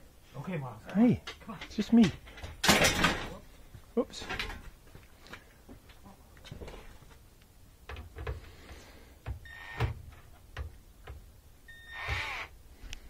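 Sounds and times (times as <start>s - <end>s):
cordless drill whirring: 11.7s - 12.5s.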